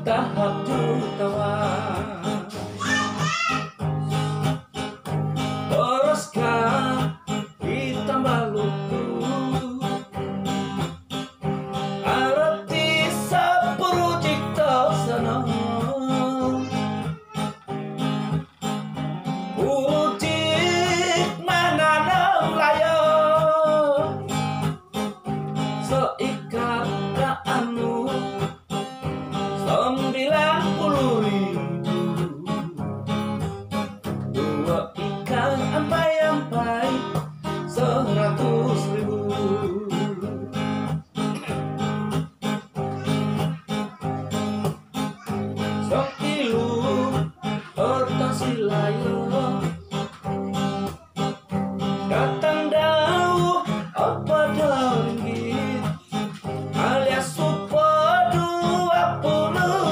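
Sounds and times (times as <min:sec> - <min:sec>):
acoustic guitar strumming: 0:00.0 - 0:59.9
man singing: 0:00.0 - 0:59.9.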